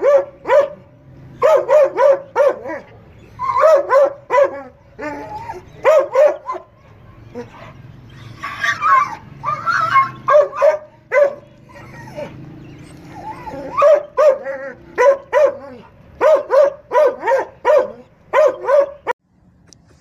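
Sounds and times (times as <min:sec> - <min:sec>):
dog barking sharply: 0:16.2 - 0:19.1.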